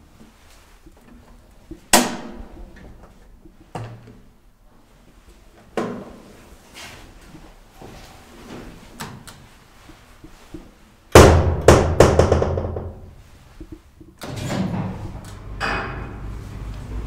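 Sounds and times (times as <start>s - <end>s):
elevator doors clanking shut: 14.2s - 16.3s.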